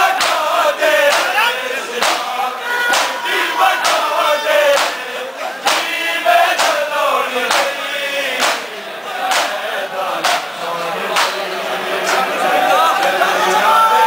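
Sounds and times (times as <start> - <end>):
men chanting together: 0.0 - 14.0
hands slapping chests: 0.2 - 1.3, 2.0 - 2.3, 2.9 - 3.2, 3.8 - 4.1, 4.7 - 5.0, 5.6 - 6.8, 7.5 - 7.8, 8.4 - 8.7, 9.3 - 9.6, 10.2 - 10.5, 11.2 - 11.4.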